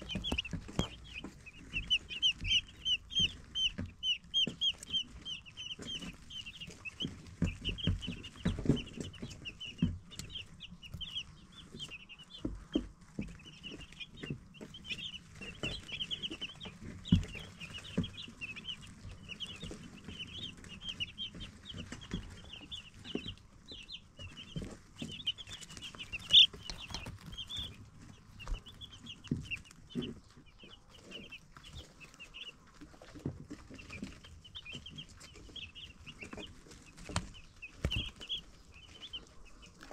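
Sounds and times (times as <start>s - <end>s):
soft low thumps: 0.0s - 32.4s
baby chicks peeping: 0.0s - 39.9s.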